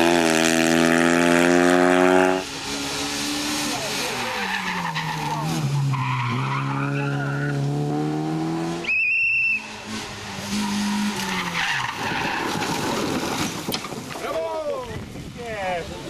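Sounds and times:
car engine at full throttle: 0:00.0 - 0:13.8
high tyre squeal: 0:02.3 - 0:07.6, 0:08.8 - 0:13.6
tyres skidding on loose surface: 0:02.3 - 0:07.8, 0:09.0 - 0:14.8.

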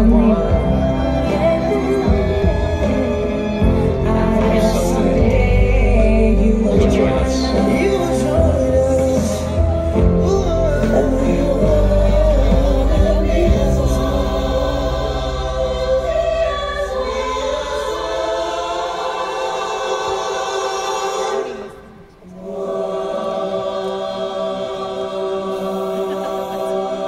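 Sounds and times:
choir singing held chords: 0:00.0 - 0:27.0.

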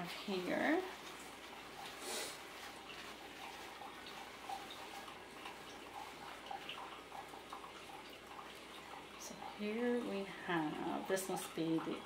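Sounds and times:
paper towel rustling: 0:00.0 - 0:06.6.

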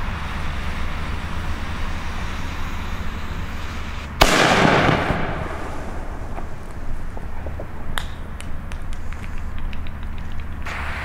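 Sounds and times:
fuse hissing: 0:00.0 - 0:04.2, 0:04.9 - 0:11.0
firework sparks hissing: 0:00.0 - 0:11.0
firework bang: 0:04.2 - 0:09.2.

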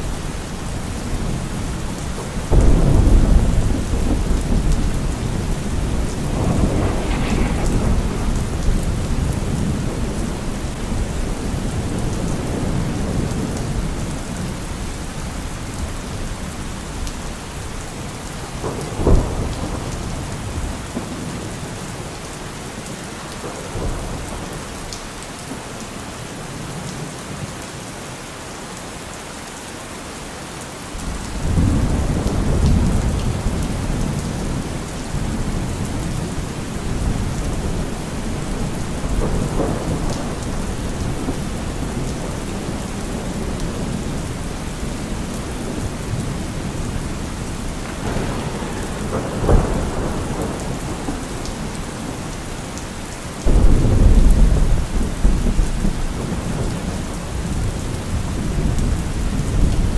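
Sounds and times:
thunder rumbling: 0:00.0 - 0:22.1, 0:31.0 - 0:59.9
heavy rain falling: 0:00.0 - 0:59.9
sharp thunder crack: 0:02.5 - 0:11.2, 0:47.8 - 0:51.4, 0:53.5 - 0:56.6.

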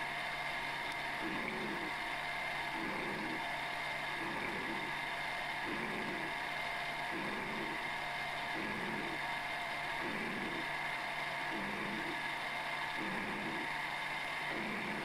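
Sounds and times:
milling machine whining: 0:02.7 - 0:03.5, 0:04.1 - 0:15.0.

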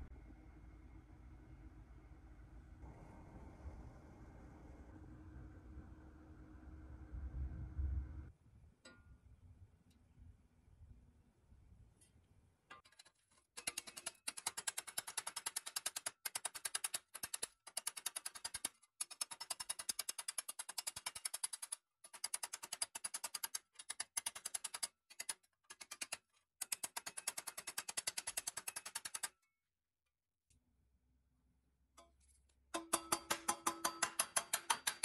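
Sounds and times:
hammer tapping on metal: 0:32.7 - 0:35.0.

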